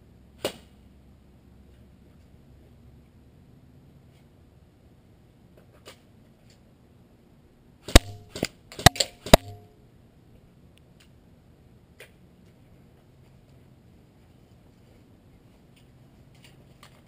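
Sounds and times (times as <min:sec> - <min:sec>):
pellets hitting helmet: 0:07.9 - 0:09.7.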